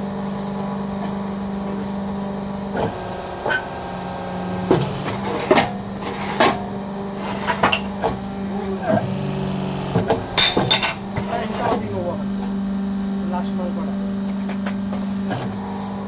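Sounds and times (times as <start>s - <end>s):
electric motor humming: 1.3s - 15.8s
sharp machine knocks: 2.7s - 6.8s, 7.5s - 12.6s.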